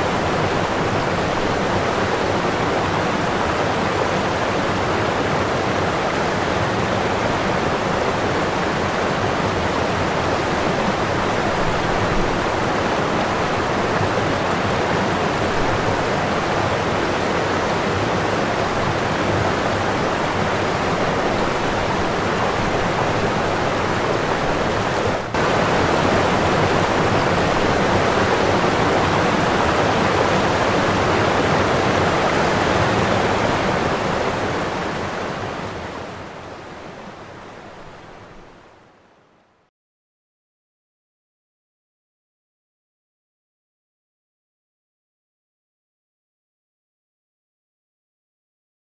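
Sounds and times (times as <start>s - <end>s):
water rushing: 0.0s - 38.8s
wind: 0.0s - 39.7s.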